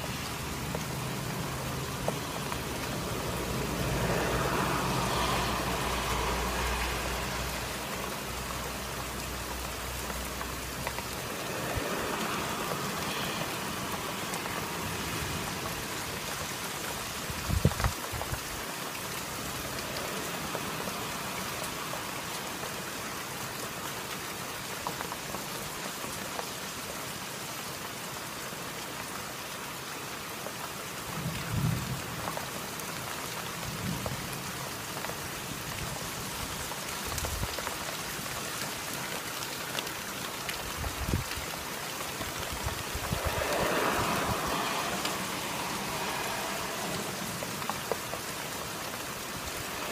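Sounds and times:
steady rain: 0.0s - 49.9s.

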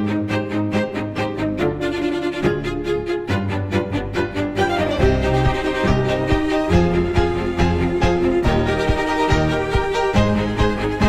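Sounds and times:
bowed strings over a beat: 0.0s - 11.0s.

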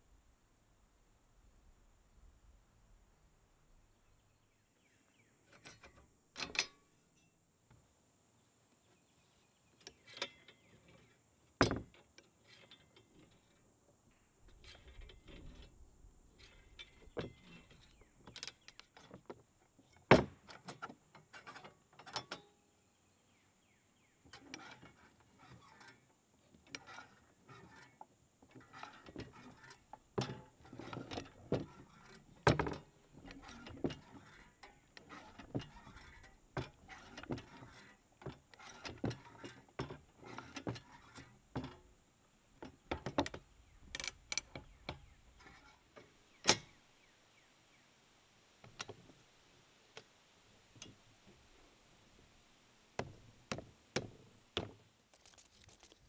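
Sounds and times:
loose metal parts rattling: 26.7s - 41.9s, 55.1s - 56.0s
metal clanks and knocks: 28.6s - 41.9s.

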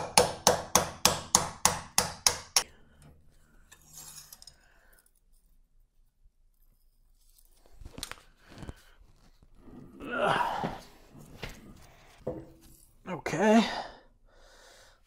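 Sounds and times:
hammer striking metal: 0.0s - 2.7s
steel wedge scraping: 3.0s - 4.6s.

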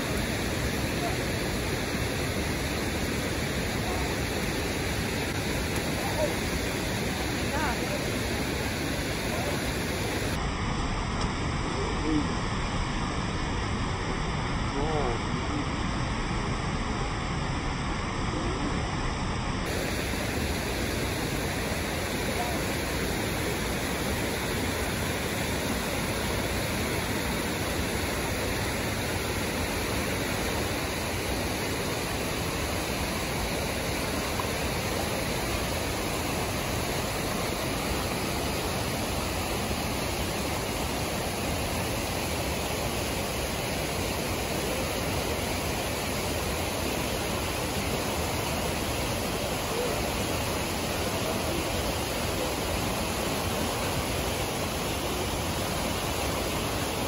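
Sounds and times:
water rushing over rocks: 0.0s - 57.0s.

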